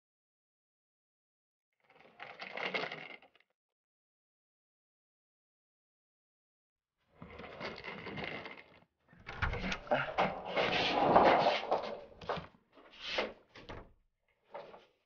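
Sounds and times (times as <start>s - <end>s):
door clicks and knocks: 9.2s - 10.4s.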